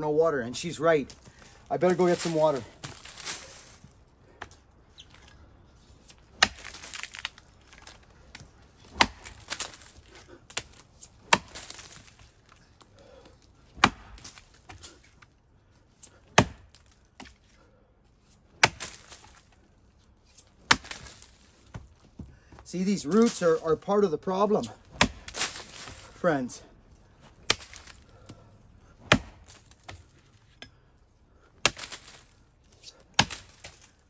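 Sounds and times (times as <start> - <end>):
axe chopping tree trunk: 6.1 - 12.3, 13.7 - 15.2, 16.0 - 17.4, 18.5 - 19.6, 20.4 - 22.3, 23.1 - 23.7, 24.4 - 26.4, 27.3 - 28.4, 29.0 - 30.1, 31.6 - 34.0.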